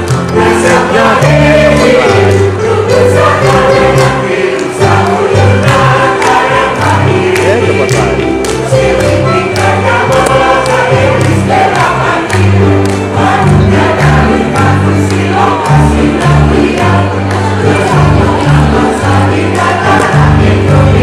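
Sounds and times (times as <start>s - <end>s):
mixed choir singing: 0.0s - 21.0s
electronic keyboard bass notes: 7.0s - 9.3s.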